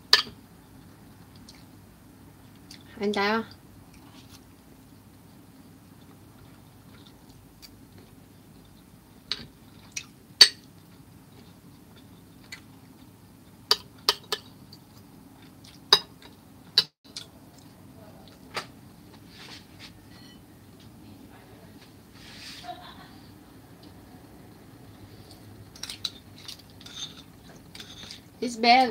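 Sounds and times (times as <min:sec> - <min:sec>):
metal spoon clinking on dish: 0:26.8 - 0:28.2.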